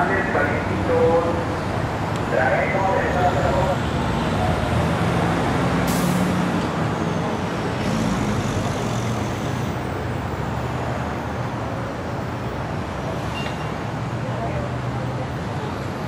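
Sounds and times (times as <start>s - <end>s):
traffic passing: 0.0s - 16.0s.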